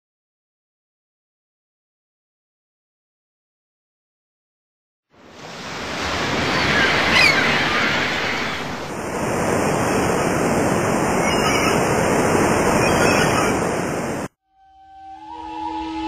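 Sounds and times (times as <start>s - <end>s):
ocean waves and surf: 5.2s - 14.4s.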